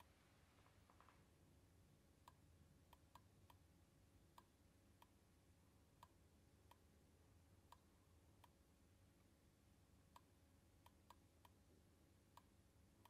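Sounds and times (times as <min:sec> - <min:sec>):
soft sharp clicks: 0:02.2 - 0:03.7, 0:04.3 - 0:07.0, 0:07.6 - 0:08.7, 0:10.1 - 0:11.7, 0:12.3 - 0:13.0.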